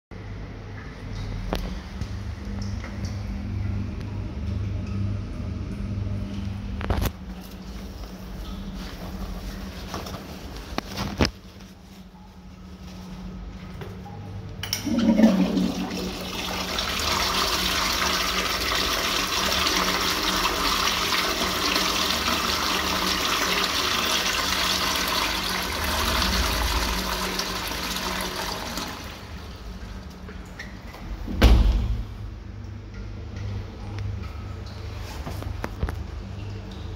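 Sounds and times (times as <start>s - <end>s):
toilet flushing water rushing: 14.7s - 30.3s
loud thump: 31.3s - 32.0s.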